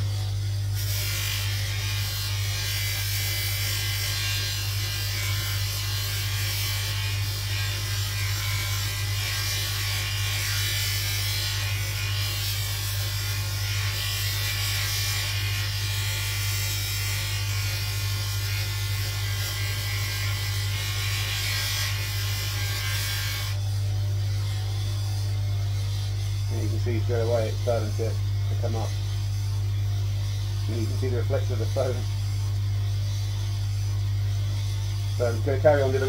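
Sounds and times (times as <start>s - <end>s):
polishing motor humming: 0.0s - 36.0s
metal rasping on buffing wheel: 34.3s - 36.0s.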